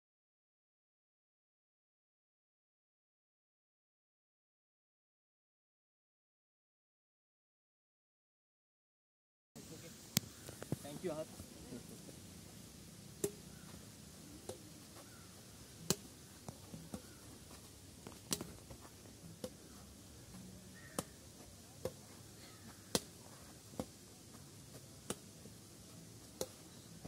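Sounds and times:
rackets striking a shuttlecock: 13.1 - 17.4, 18.0 - 19.8, 20.8 - 21.2, 21.8 - 24.0, 25.0 - 25.3, 26.2 - 26.7.

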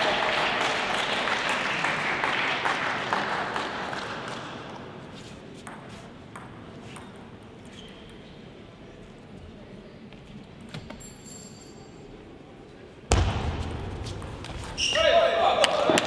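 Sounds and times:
crowd applause: 0.0 - 4.5, 15.4 - 16.0.

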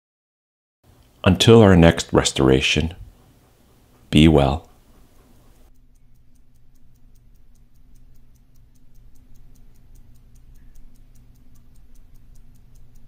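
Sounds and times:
pocket watch ticking: 3.4 - 13.0.

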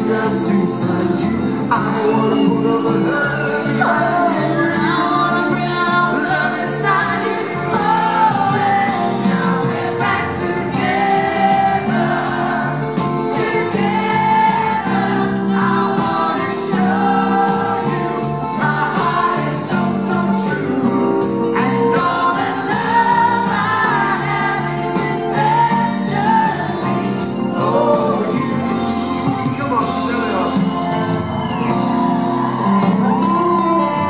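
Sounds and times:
man singing: 0.0 - 10.2, 14.9 - 23.1, 24.5 - 31.5
band playing: 0.0 - 34.0
woman singing: 2.0 - 12.8, 13.4 - 28.4.

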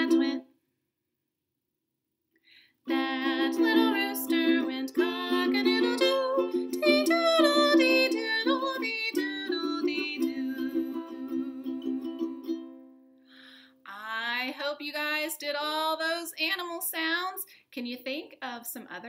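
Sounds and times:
ukulele strumming chords: 0.0 - 0.4, 2.9 - 13.0
woman singing: 0.0 - 0.4, 2.9 - 12.3, 13.9 - 17.3.

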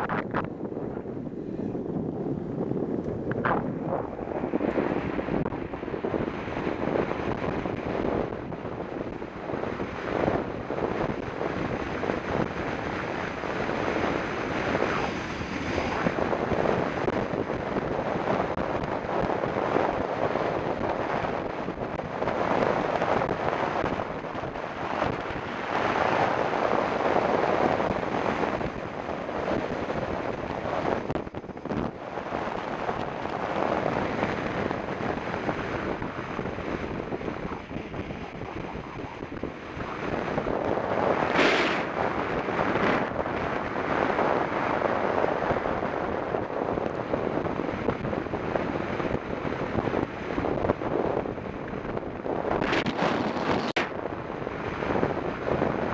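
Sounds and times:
wind rushing over microphone: 0.0 - 55.9.

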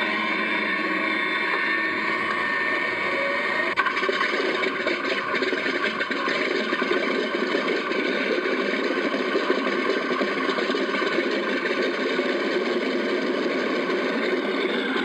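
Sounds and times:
model plane motor whining: 0.0 - 3.8.

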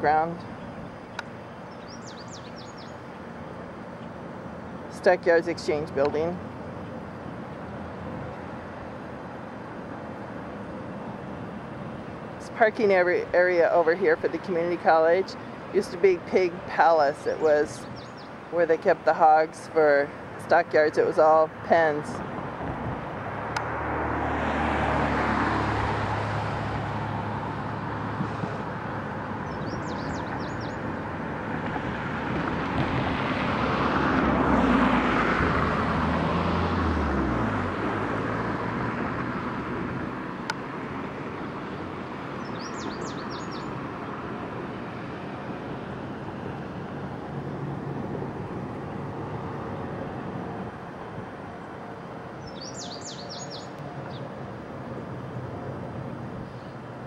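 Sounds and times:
road traffic: 0.0 - 57.0
bird chirping: 1.6 - 3.0, 17.8 - 18.6, 29.4 - 30.9, 42.4 - 43.8, 52.4 - 54.3
vehicle engine passing: 22.0 - 57.0.

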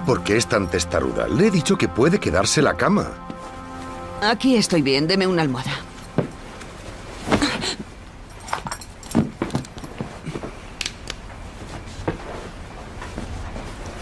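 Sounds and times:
bedding and pillow rustling: 3.3 - 10.6, 11.4 - 14.0.

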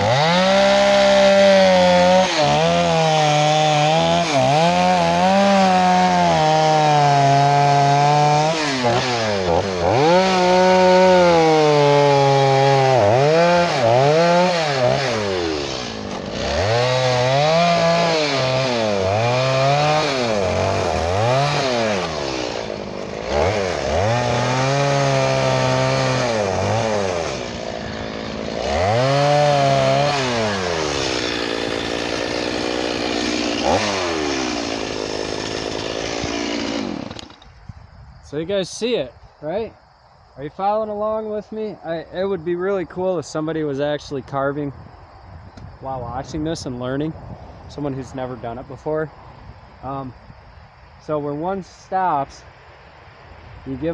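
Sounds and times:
chainsaw cutting into log: 0.0 - 37.6.

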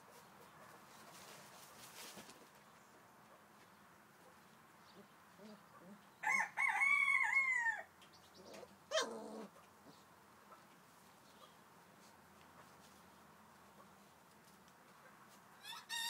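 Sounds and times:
rooster crowing: 6.2 - 7.9, 15.6 - 16.0.

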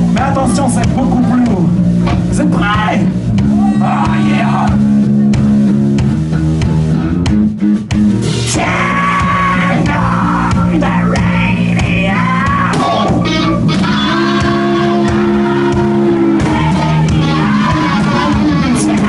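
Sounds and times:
hard rock band playing: 0.0 - 19.0
singer's shouted vocals: 2.5 - 4.9, 8.5 - 19.0.

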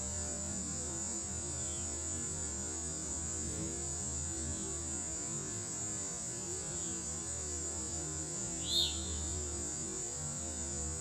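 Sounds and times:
steady high hiss: 0.0 - 11.0
hummingbird wings humming: 8.2 - 10.8
short bird chirp: 8.6 - 9.4.

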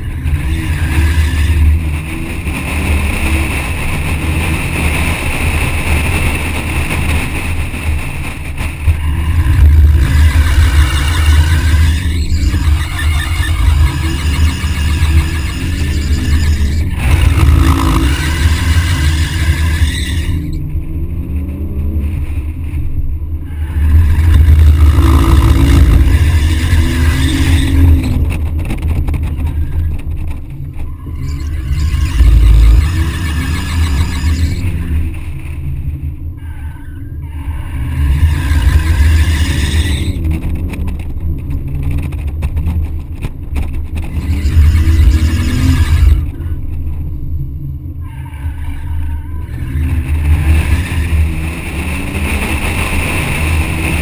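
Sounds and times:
car engine revving: 0.0 - 54.0
tyres squealing: 9.4 - 20.6, 23.5 - 28.2.

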